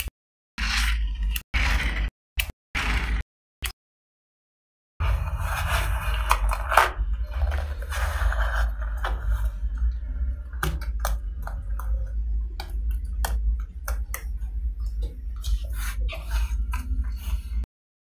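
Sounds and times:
steady low hum: 5.0s - 17.7s.

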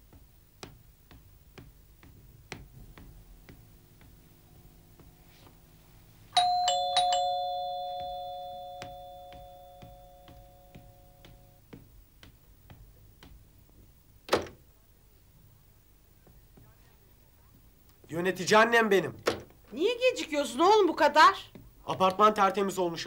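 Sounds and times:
light footsteps: 0.0s - 14.0s
two-tone doorbell chime: 6.4s - 11.6s.

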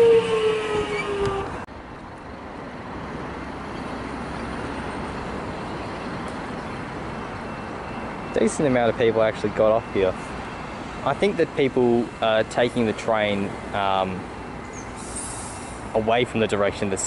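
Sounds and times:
train traction motors whining: 0.0s - 1.7s
road traffic rumble: 0.0s - 17.0s.

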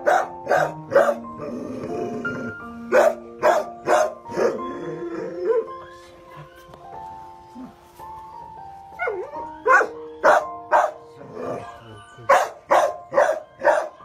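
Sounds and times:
dog barking: 0.0s - 1.2s, 2.9s - 4.5s, 9.0s - 11.0s, 12.3s - 14.0s
soft background music: 0.0s - 14.0s.

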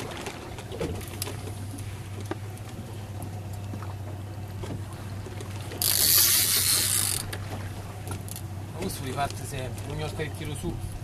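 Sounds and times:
boat engine hum: 0.0s - 11.0s
fishing reel clicks: 5.8s - 7.4s.

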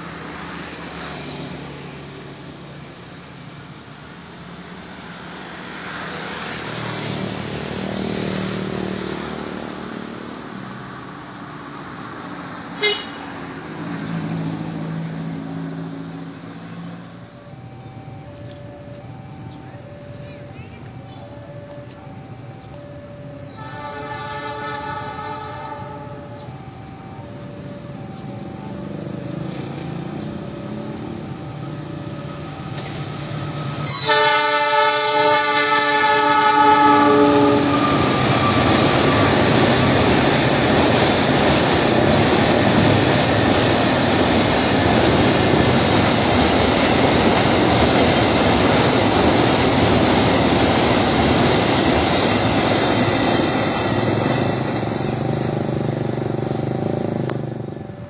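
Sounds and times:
freight train wheels on rails: 0.0s - 58.0s
locomotive horn chord: 12.8s - 14.2s, 23.4s - 26.7s, 33.8s - 39.8s.

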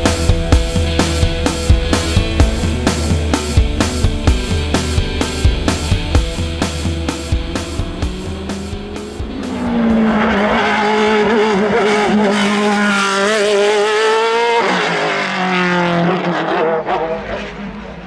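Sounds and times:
music: 0.0s - 11.5s
racing car engine accelerating: 0.0s - 18.0s.

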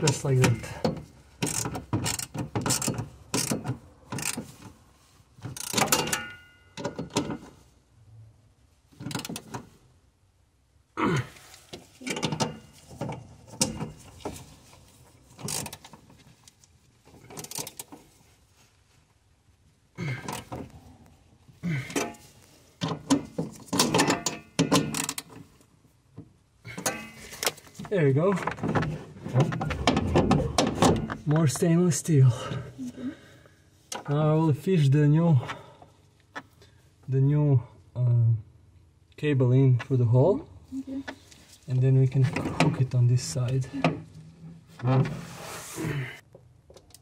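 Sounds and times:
wrench clicking and scraping: 0.8s - 4.7s, 5.5s - 7.2s, 15.4s - 16.0s, 17.2s - 18.0s, 23.6s - 25.3s
ratchet wrench clicking: 1.4s - 3.6s, 4.2s - 4.4s, 5.6s - 6.1s.

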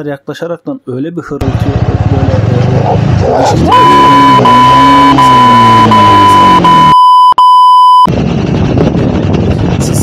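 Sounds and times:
motorcycle engine slowing down: 1.4s - 6.9s, 8.1s - 10.0s
high-pitched bleep tone: 3.6s - 8.1s.

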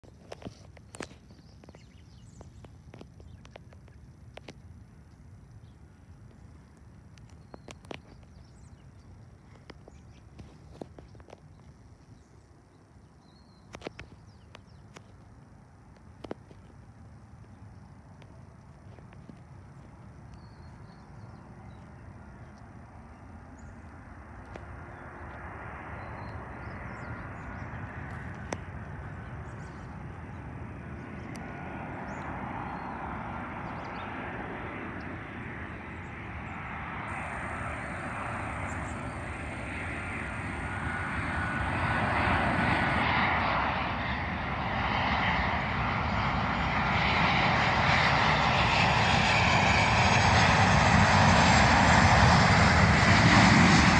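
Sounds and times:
jet engines rushing: 13.7s - 53.9s.

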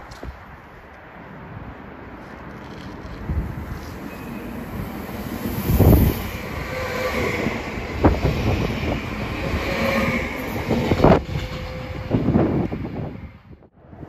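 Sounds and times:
train wheels rolling: 2.1s - 13.2s.

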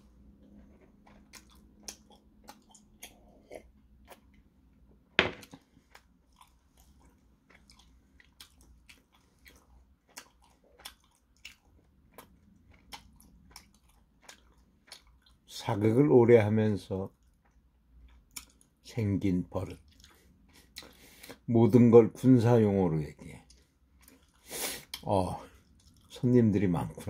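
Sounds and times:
person chewing food: 0.0s - 4.8s, 5.4s - 15.5s, 17.1s - 18.8s, 19.7s - 21.5s, 23.4s - 26.2s
glass set down on table: 5.2s - 5.6s.

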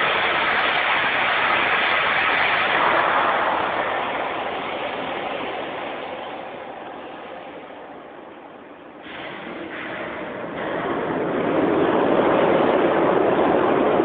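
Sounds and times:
machinery whirring hiss: 0.0s - 11.9s.

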